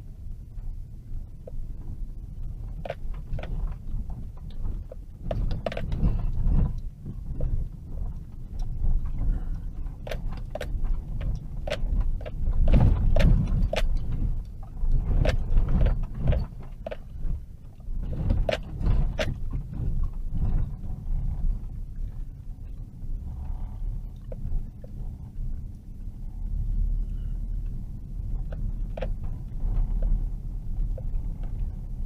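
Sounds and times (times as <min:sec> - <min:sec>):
vehicle rumbling on dirt road: 0:00.0 - 0:32.0
sharp clicks and knocks: 0:02.6 - 0:21.4, 0:27.6 - 0:32.0.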